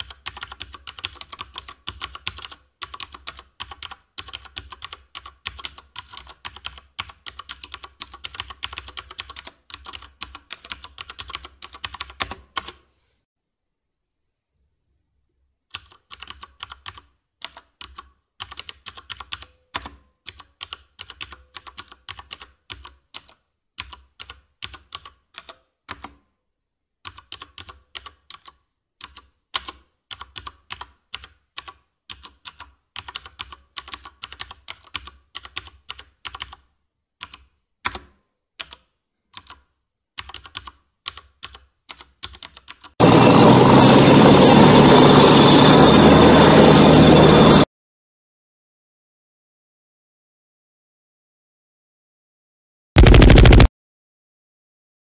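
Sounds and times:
loud steady low noise: 53.0 - 53.7.

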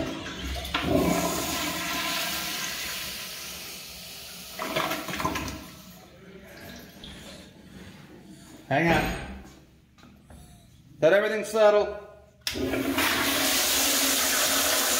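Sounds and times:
toilet flushing: 0.0 - 7.3, 12.5 - 14.9.

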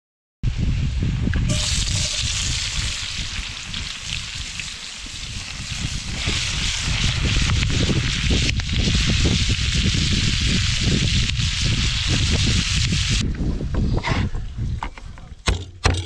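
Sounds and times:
sharp crackles: 1.5 - 13.2
skillet sizzling: 1.5 - 13.2.

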